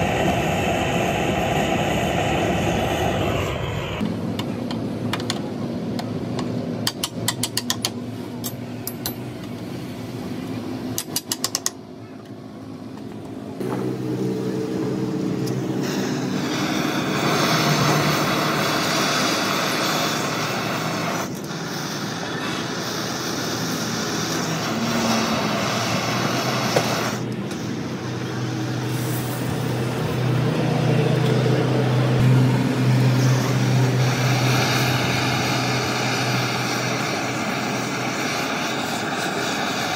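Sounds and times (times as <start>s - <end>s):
motor-like drone: 0.0s - 4.0s, 13.6s - 39.9s.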